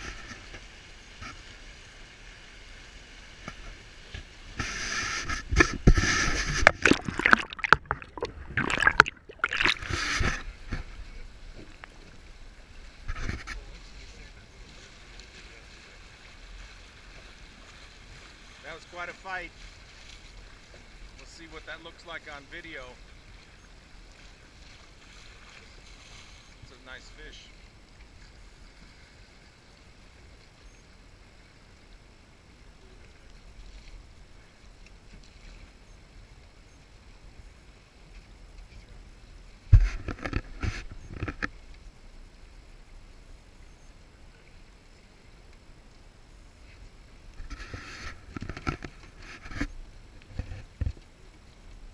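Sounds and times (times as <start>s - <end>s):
river current rushing: 0.0s - 11.6s
water splash: 3.2s - 11.0s.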